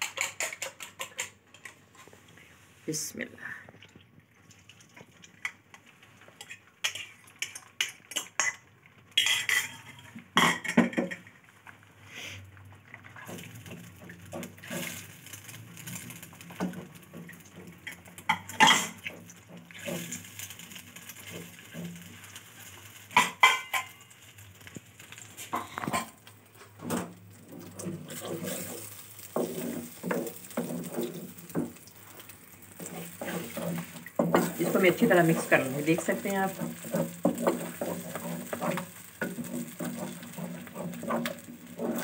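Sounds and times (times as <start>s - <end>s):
wooden spatula scraping wok: 0.0s - 3.0s, 13.1s - 23.9s, 24.8s - 42.0s.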